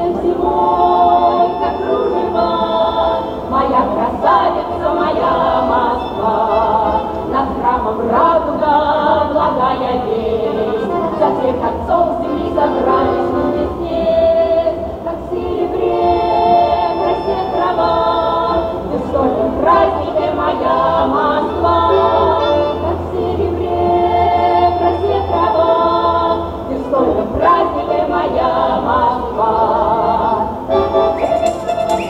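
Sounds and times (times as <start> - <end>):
women singing in harmony: 0.0 - 31.3.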